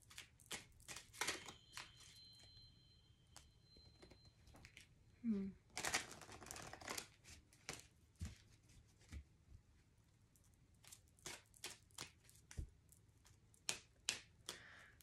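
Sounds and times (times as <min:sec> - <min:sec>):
cards being shuffled: 0:00.0 - 0:02.1, 0:05.8 - 0:09.2.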